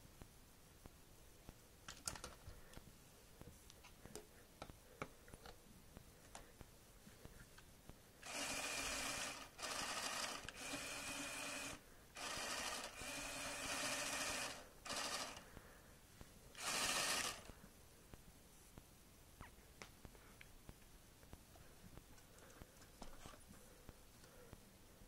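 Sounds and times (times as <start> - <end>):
electric motor buzzing whine: 8.2 - 15.4, 16.6 - 17.5.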